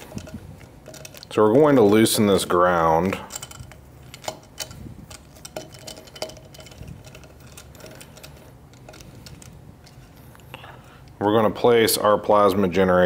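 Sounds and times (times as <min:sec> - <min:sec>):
screwdriver clicking on metal: 0:00.0 - 0:02.3, 0:03.1 - 0:10.4.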